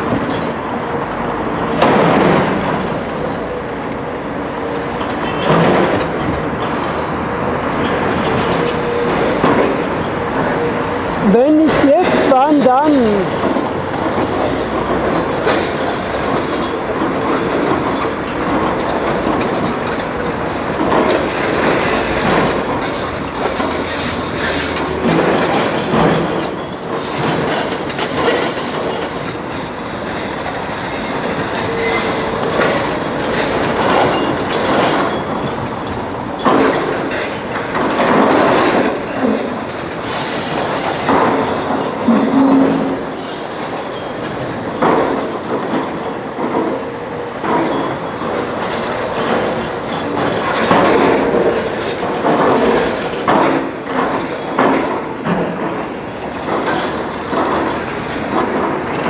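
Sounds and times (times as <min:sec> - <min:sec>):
hydraulic breaker pounding concrete: 0:11.7 - 0:46.8, 0:47.4 - 0:59.0.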